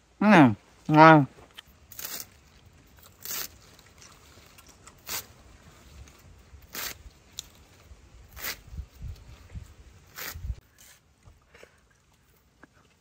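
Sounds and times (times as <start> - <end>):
knife slicing crisp stems: 6.6 - 7.6, 10.1 - 11.0.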